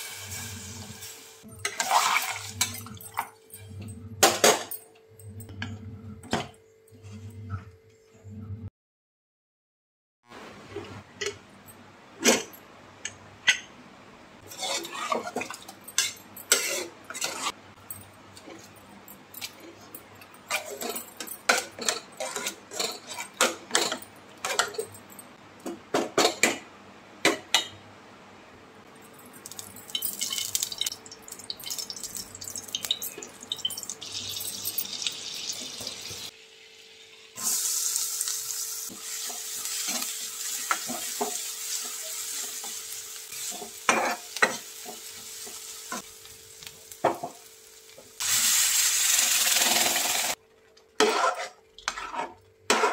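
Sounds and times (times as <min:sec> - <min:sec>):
onions sizzling in oil: 0:00.0 - 0:02.6, 0:31.7 - 0:50.4.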